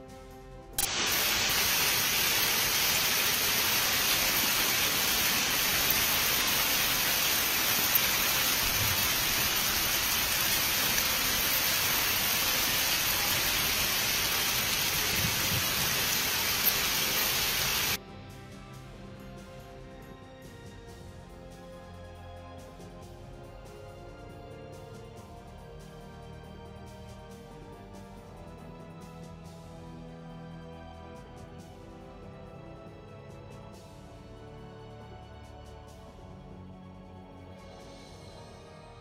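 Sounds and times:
heavy rain on pavement: 0:00.8 - 0:18.0.

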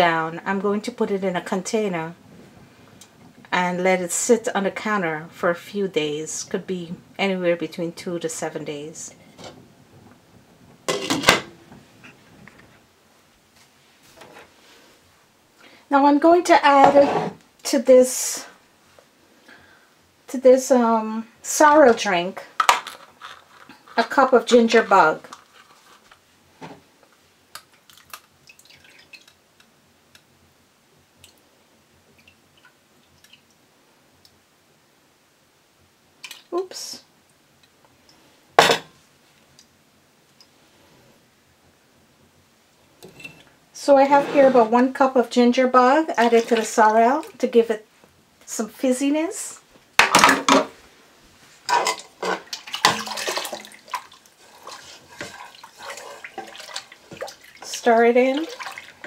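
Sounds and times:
liquid splashing into a pot: 0:51.7 - 0:59.0.

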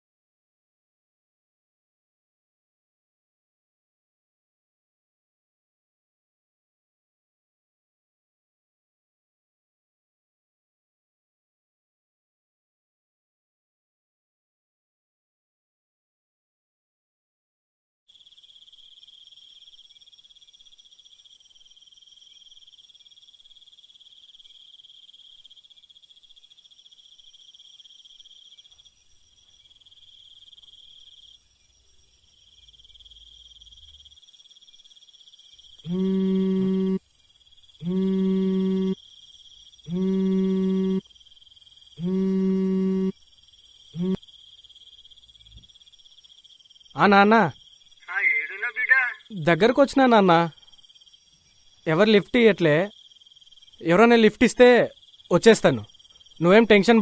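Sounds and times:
crickets chirping: 0:18.1 - 0:57.0
phone buzzing call alert: 0:35.9 - 0:37.0, 0:37.8 - 0:39.0, 0:39.9 - 0:41.0, 0:42.0 - 0:43.1, 0:44.0 - 0:44.2.

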